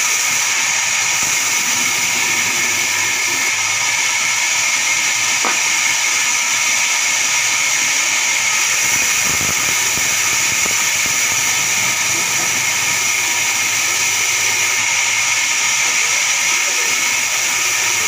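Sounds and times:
band saw ripping a log: 1.1s - 5.9s, 8.4s - 15.2s.

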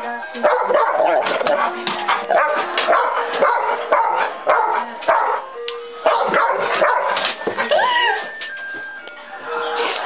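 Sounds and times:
dog barking: 0.4s - 1.2s, 2.3s - 7.2s.

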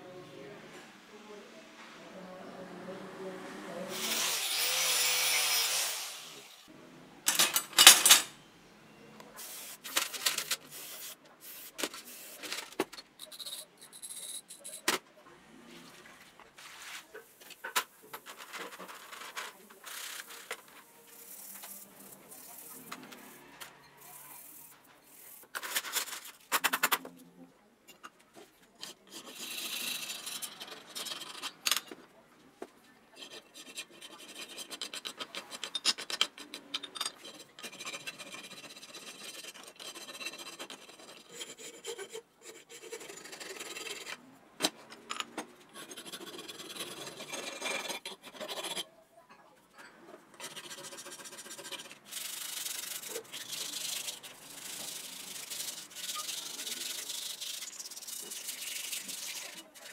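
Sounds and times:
sandpaper rubbing metal: 50.4s - 59.9s.

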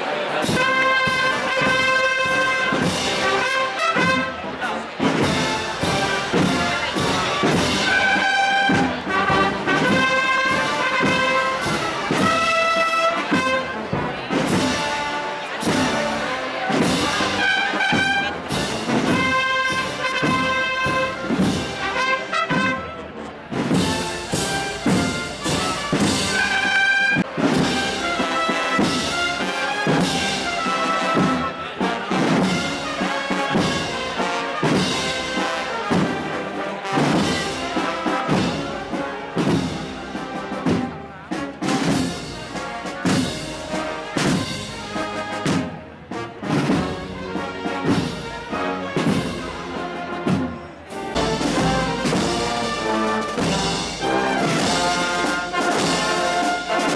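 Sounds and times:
brass band playing a march: 0.0s - 56.9s
steady drum beat: 0.4s - 56.9s.

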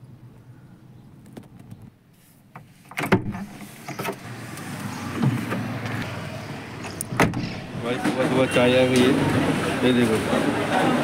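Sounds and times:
knocks and rustling: 5.0s - 6.1s, 6.8s - 8.4s
car door latch click: 6.8s - 7.7s.

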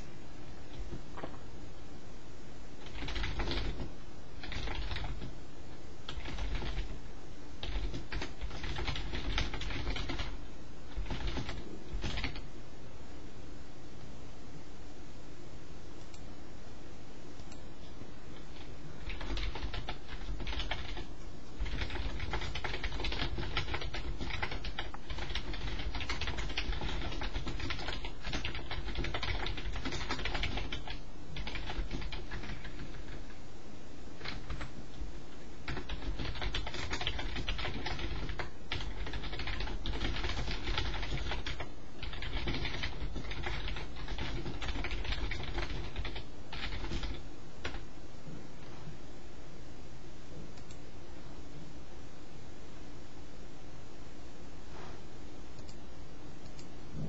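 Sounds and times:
rapid keyboard typing: 2.8s - 5.4s, 6.0s - 7.0s, 7.6s - 12.5s, 18.4s - 33.4s, 34.2s - 47.8s.

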